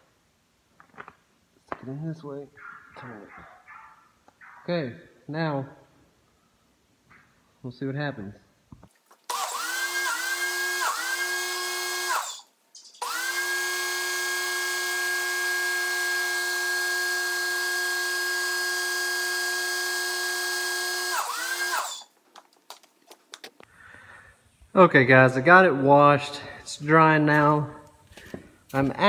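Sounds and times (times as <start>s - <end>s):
electric pressure washer motor whine: 9.3s - 22.1s.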